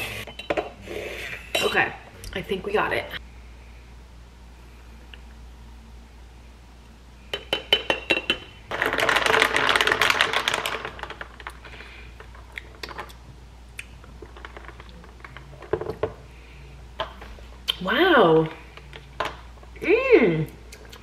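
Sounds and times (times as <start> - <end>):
ice cubes clinking in glass: 7.9 - 11.6.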